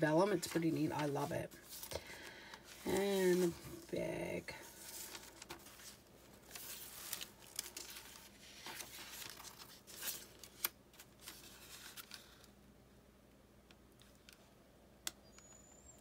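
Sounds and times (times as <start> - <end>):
paper pages rustling: 0.0 - 12.5.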